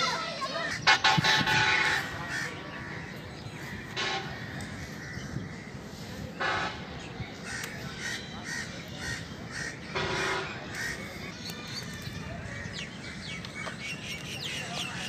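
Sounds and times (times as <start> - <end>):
crow cawing: 0.5 - 5.7, 7.4 - 11.1.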